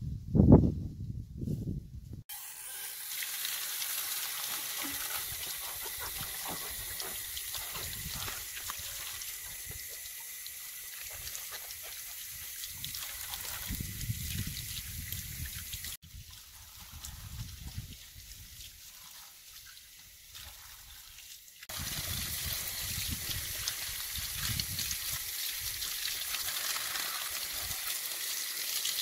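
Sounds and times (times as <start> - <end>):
water running from a tap: 2.3 - 29.0
water splashing over cabbage: 2.8 - 29.0.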